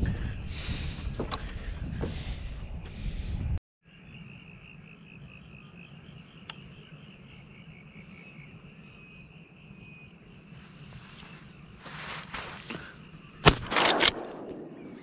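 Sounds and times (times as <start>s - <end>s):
wind: 0.0s - 15.0s
sharp click: 13.4s - 14.6s.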